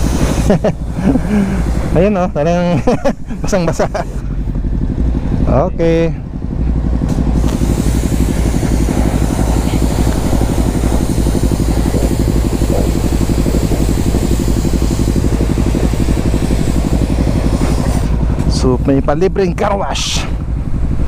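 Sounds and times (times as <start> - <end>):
pressure washer spraying water: 0.0 - 4.2, 7.1 - 18.5
engine idling: 0.0 - 21.0.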